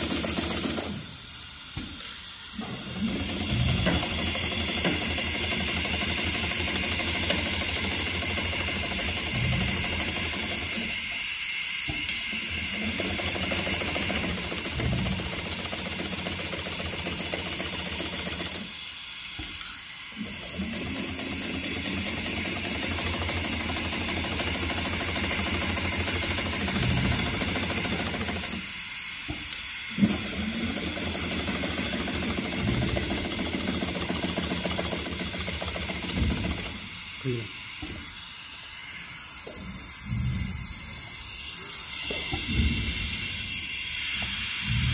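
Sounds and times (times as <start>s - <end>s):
sewing machine stitching: 0.0s - 1.0s, 2.6s - 11.0s, 12.5s - 18.7s, 20.3s - 28.7s, 30.0s - 36.9s.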